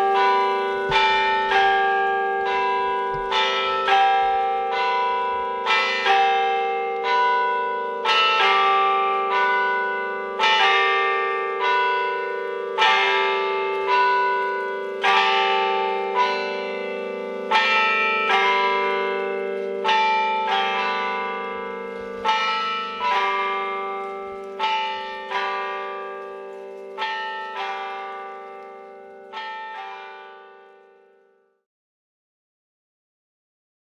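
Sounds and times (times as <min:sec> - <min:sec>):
low hum from bells: 0:00.0 - 0:30.7
church bells ringing: 0:00.0 - 0:31.6.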